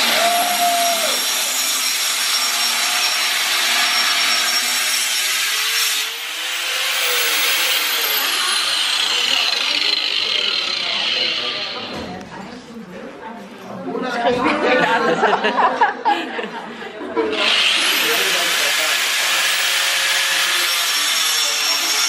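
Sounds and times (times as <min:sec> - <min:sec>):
angle grinder cutting steel: 0:00.0 - 0:11.9, 0:17.3 - 0:22.0
grinder disc whine winding down: 0:06.8 - 0:11.9.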